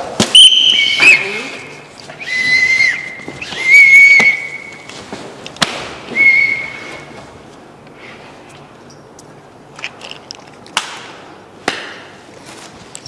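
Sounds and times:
whistle blasts: 0.2 - 4.9, 6.1 - 7.2.

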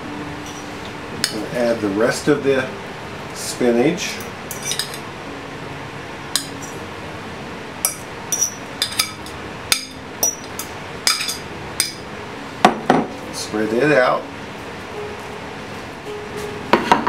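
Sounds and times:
metal utensil scraping glass bowl: 4.5 - 5.0.

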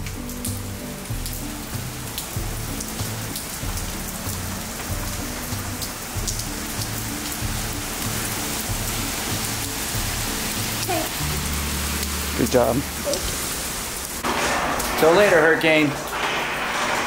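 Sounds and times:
background music with low beat: 0.0 - 12.9
water drips and ticks: 0.0 - 16.1
rain falling: 0.0 - 17.0.

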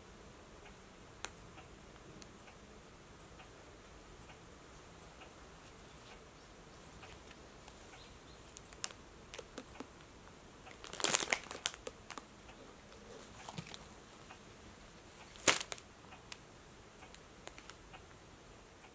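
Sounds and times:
plastic wrappers crinkling: 8.4 - 9.9, 10.7 - 12.3, 13.2 - 13.9, 15.2 - 15.8, 17.4 - 17.8.

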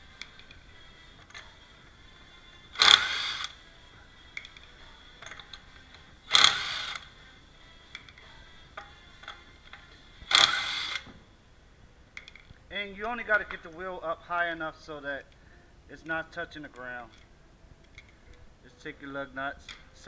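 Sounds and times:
impact wrench spinning lug nuts: 2.7 - 3.6, 4.3 - 7.2, 7.9 - 11.1.

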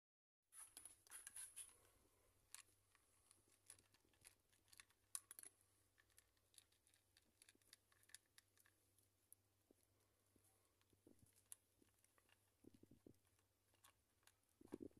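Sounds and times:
cats crunching food: 0.8 - 14.9.

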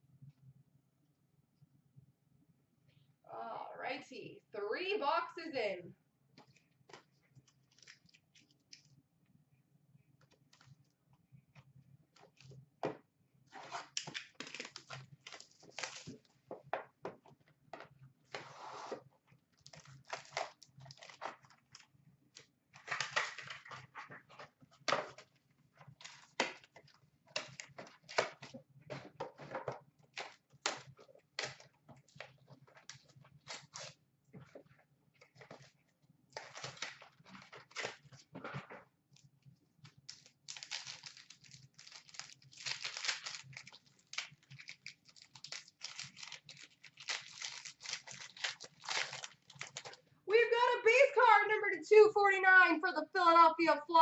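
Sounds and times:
plastic and foil packaging crinkling: 6.5 - 8.9, 13.5 - 16.5, 19.5 - 38.3, 39.2 - 50.1.

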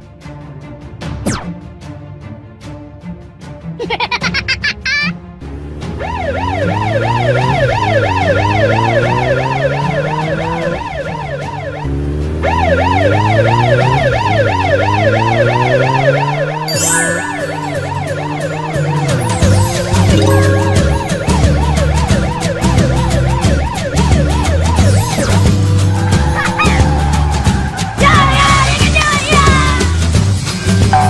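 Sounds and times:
vehicle engine revving: 5.4 - 16.7
police siren wailing: 5.8 - 28.9.

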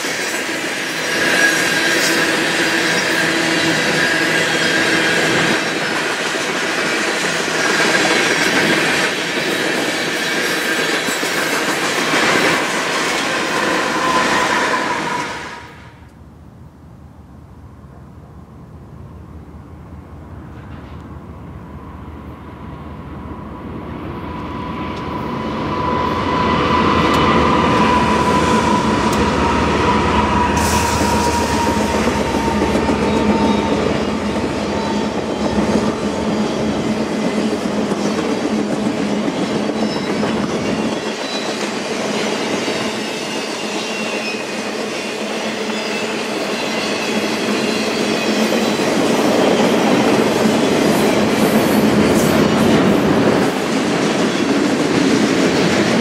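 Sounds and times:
freight train rolling past: 0.0 - 16.1, 16.9 - 56.0
high whine: 21.2 - 38.3.

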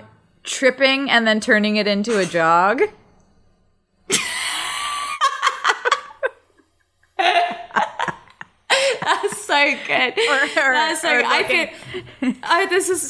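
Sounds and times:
women laughing: 4.1 - 12.5.

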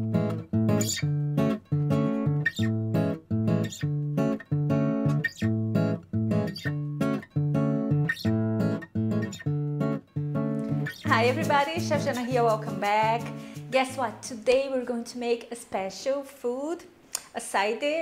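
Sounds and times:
acoustic guitar strumming chords: 0.0 - 14.2.

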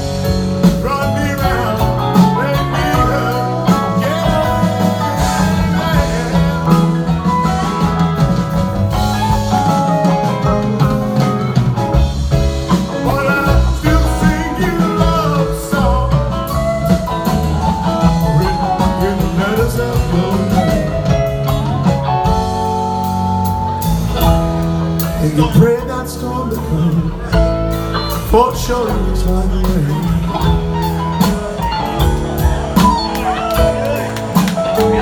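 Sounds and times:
live rock band playing: 0.0 - 35.0.

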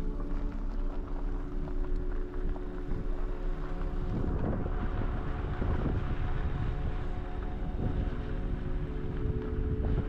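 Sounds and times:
wind buffeting microphone: 3.0 - 10.0.

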